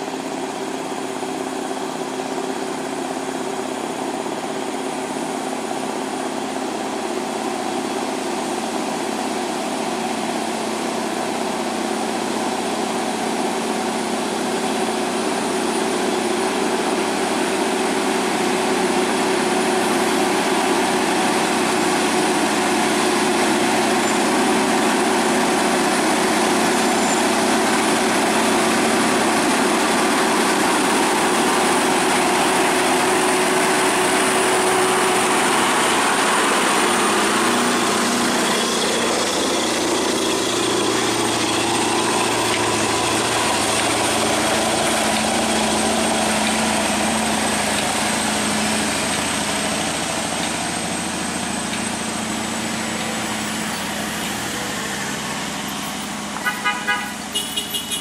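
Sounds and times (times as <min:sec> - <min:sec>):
diesel truck engine: 0:00.0 - 0:58.0.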